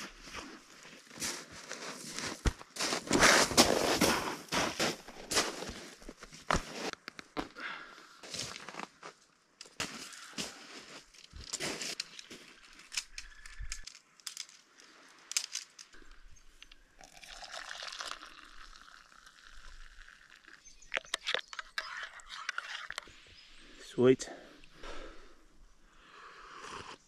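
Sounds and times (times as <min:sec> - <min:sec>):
handling clicks and crinkles: 0:10.9 - 0:16.8, 0:20.4 - 0:23.2.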